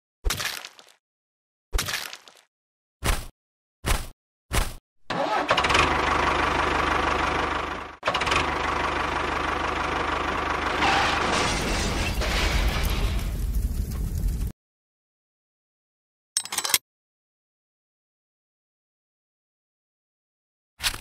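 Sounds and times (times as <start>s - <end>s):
engine cranking: 5.1s - 7.1s
engine running with deep rumble: 5.1s - 14.5s.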